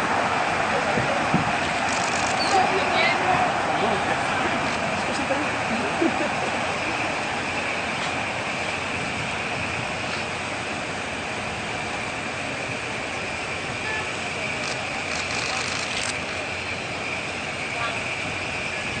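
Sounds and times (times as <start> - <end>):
traffic rumble: 0.0 - 19.0.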